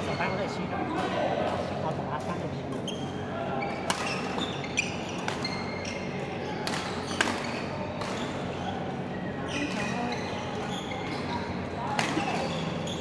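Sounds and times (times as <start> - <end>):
shoes squeaking on court: 2.7 - 13.0
racket hitting shuttlecock: 3.9 - 4.4, 6.6 - 8.2, 11.9 - 12.5.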